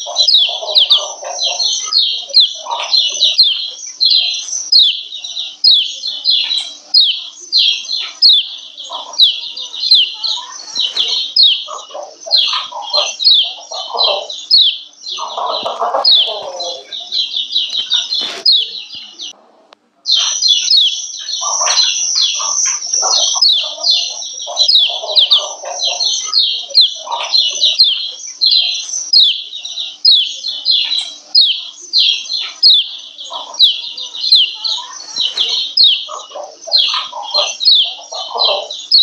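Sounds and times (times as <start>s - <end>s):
bird chirping rapidly: 0.0s - 19.4s, 20.1s - 39.0s.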